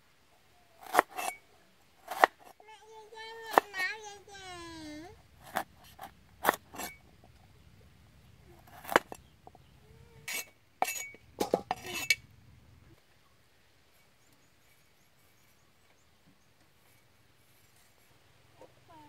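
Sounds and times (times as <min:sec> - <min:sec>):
cleaver chopping on wooden board: 0:00.8 - 0:01.3, 0:02.1 - 0:02.5, 0:08.7 - 0:09.2
steel bowl clinking: 0:10.3 - 0:12.3.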